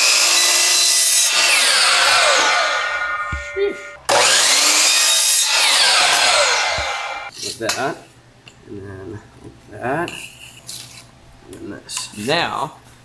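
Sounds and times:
miter saw cutting pipe: 0.0 - 7.3
saw motor spinning down: 0.0 - 7.3.

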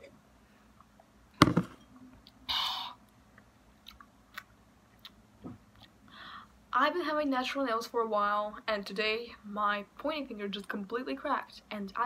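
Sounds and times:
glass knocking on desk: 1.4 - 1.8.

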